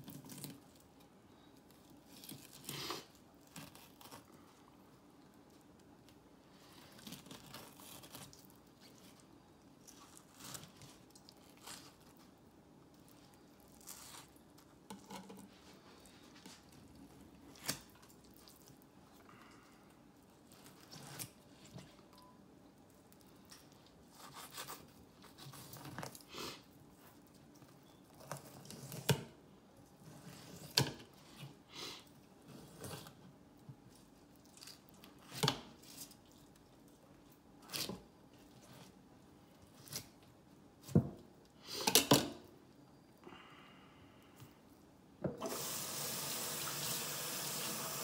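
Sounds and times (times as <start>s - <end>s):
knife cutting and scraping fish: 6.6s - 12.3s, 13.7s - 16.7s, 20.5s - 22.0s, 23.6s - 29.2s.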